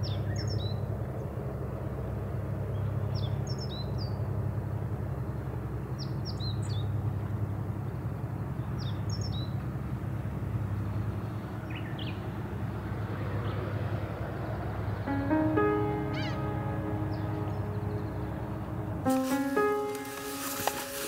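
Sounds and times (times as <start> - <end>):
calm sea and breeze: 0.0 - 21.0
gentle music with held notes: 14.7 - 21.0.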